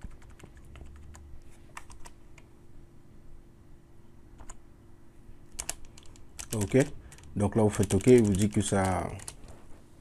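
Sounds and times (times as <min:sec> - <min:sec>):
keyboard keystrokes: 0:00.0 - 0:02.2, 0:04.4 - 0:04.6, 0:05.5 - 0:09.4
faint steady hum: 0:00.0 - 0:10.0.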